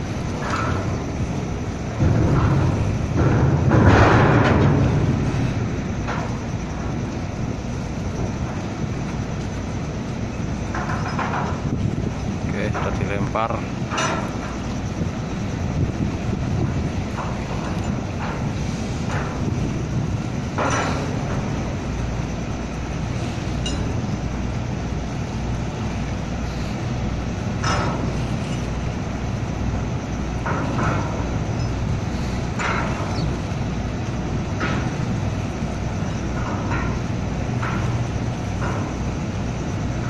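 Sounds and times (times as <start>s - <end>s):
low rumble of ship engines: 0.0s - 40.0s
wind on microphone: 0.0s - 40.0s
sharp clinks and knocks: 12.5s - 40.0s.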